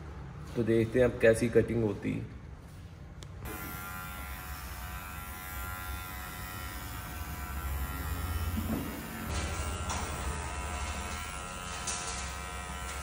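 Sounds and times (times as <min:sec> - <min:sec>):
electric hair clipper buzzing: 0:03.4 - 0:13.0.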